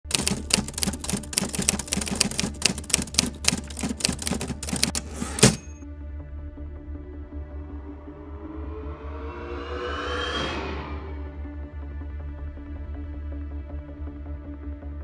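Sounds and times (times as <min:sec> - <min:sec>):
typewriter keys clacking: 0:00.0 - 0:05.8
typewriter strike with high ring: 0:04.6 - 0:05.8.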